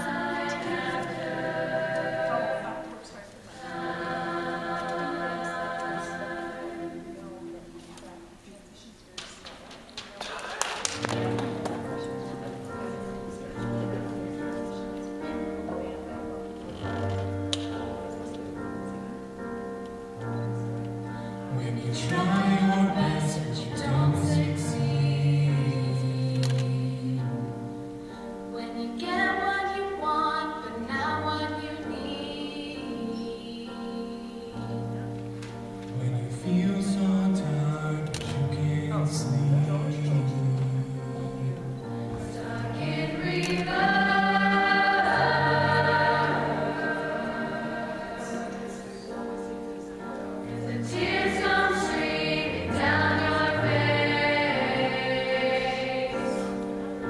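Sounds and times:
choir singing in harmony: 0.0 - 7.8, 20.4 - 57.0.

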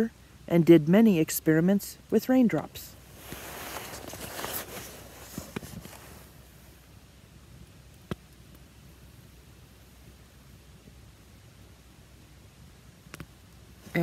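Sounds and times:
book and sleeve rustling: 3.1 - 6.6.

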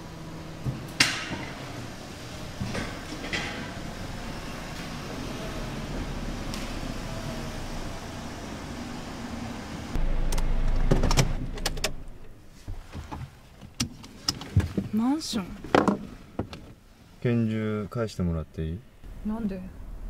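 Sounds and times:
car engine running: 0.0 - 12.9.

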